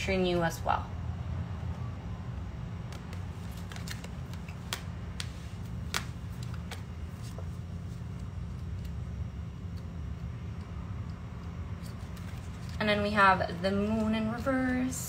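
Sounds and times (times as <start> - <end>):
low hum: 0.0 - 15.0
cards being shuffled: 2.8 - 10.0, 11.7 - 12.8.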